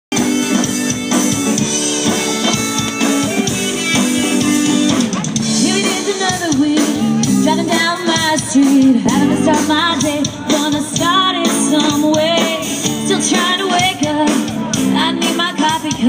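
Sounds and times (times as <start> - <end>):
sliding melody line: 0.1 - 14.0
drum kit beat: 0.1 - 16.0
guitar chords: 0.1 - 16.0.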